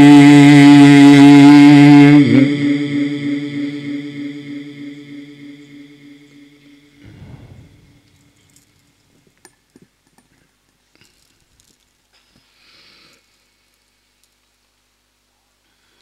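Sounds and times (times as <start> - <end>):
recitation over loudspeaker: 0.0 - 8.4.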